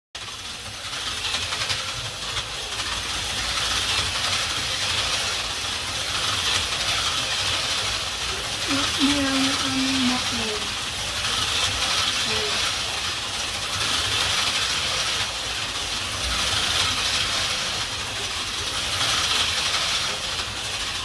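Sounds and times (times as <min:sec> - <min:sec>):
slot car motors whirring: 0:00.2 - 0:21.0.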